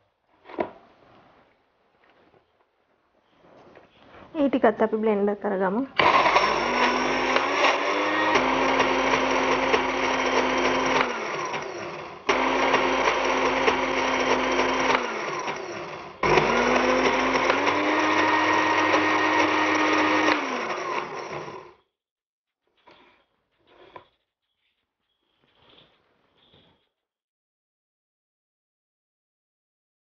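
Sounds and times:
electric blender grinding: 6.0s - 21.8s.

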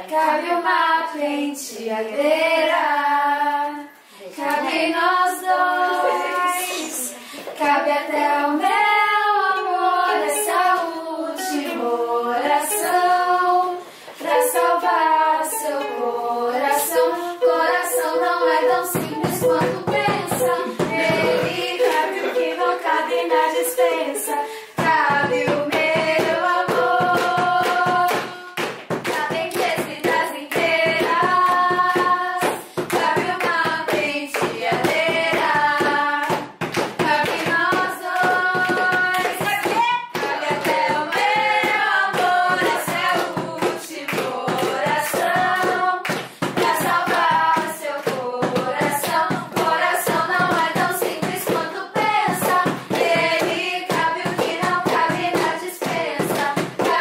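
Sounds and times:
voices singing together: 0.0s - 57.0s
rhythmic hand clapping: 5.8s - 16.0s, 16.6s - 57.0s
strummed ukulele: 8.1s - 36.0s.

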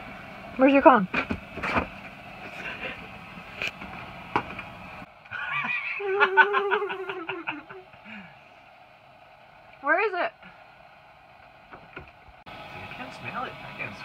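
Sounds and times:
person laughing: 5.3s - 8.3s.

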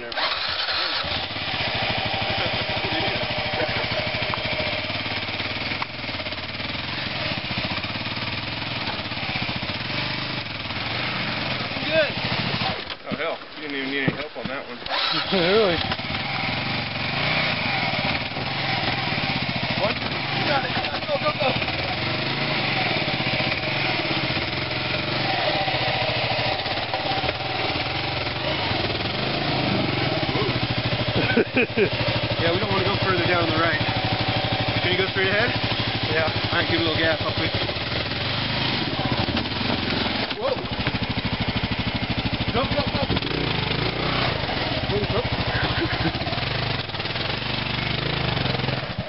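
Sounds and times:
motorcycle engine putter: 0.0s - 1.3s, 14.0s - 16.5s, 25.3s - 28.4s, 35.4s - 49.0s
motorcycle engine at low revs: 0.0s - 49.0s.

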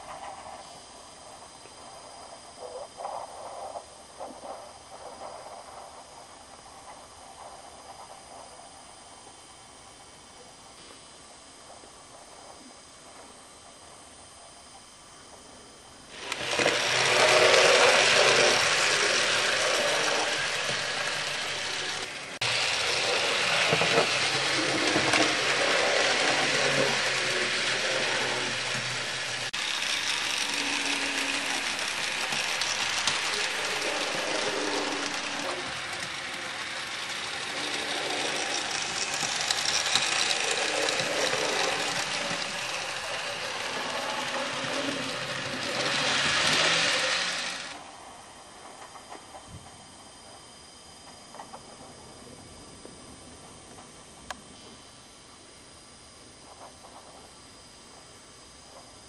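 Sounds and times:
model train running on track: 16.0s - 50.3s.

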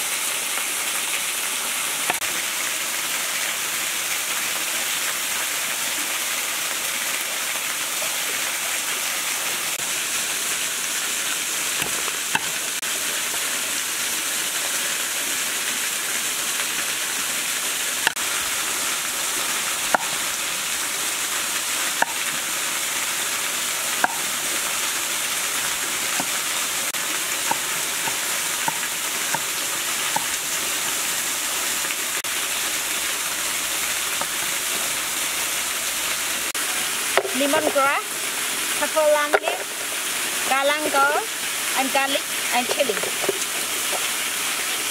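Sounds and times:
cleaver chopping on wooden board: 19.9s - 20.2s, 24.0s - 24.3s, 27.5s - 29.5s, 30.1s - 30.3s.

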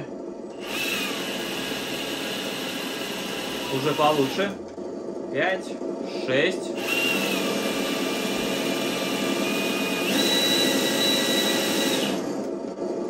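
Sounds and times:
electric motor and gears: 0.0s - 4.8s, 6.4s - 13.0s.

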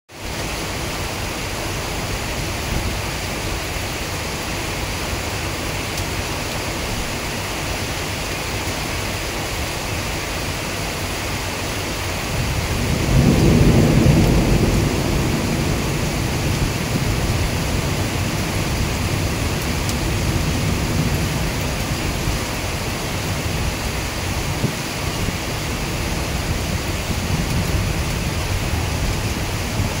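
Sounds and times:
heavy rain falling: 0.1s - 30.0s
low rumble of thunder: 12.2s - 30.0s.

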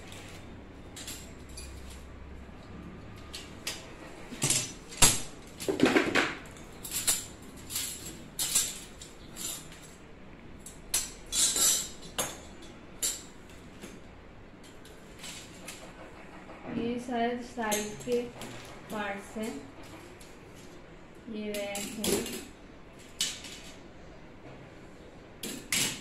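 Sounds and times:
metal rack parts clinking and knocking: 0.1s - 2.2s, 3.2s - 10.0s, 10.6s - 14.0s, 21.5s - 23.9s, 25.4s - 26.0s.

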